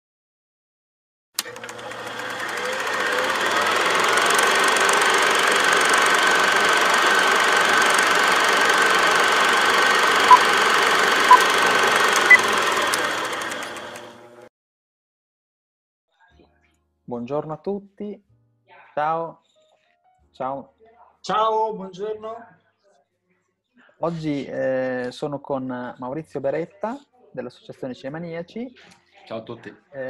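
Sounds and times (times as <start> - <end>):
click: 1.4 - 1.8
film projector whirring and clatter: 1.4 - 14.5.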